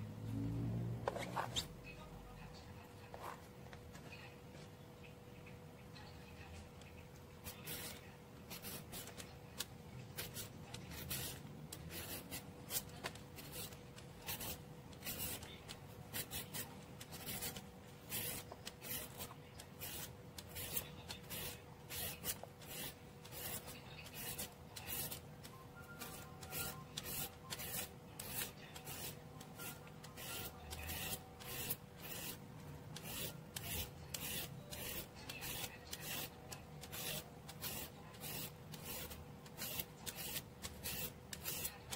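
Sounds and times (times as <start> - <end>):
peeler scraping cucumber: 7.4 - 9.2, 10.2 - 41.9.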